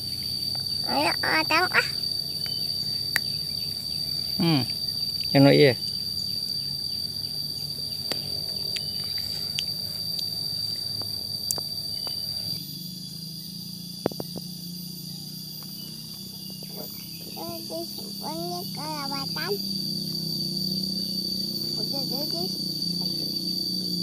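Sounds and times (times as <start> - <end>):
high-pitched insect drone: 0.0 - 24.0
child making vocal sounds: 0.8 - 2.0, 17.3 - 19.6, 21.8 - 22.6.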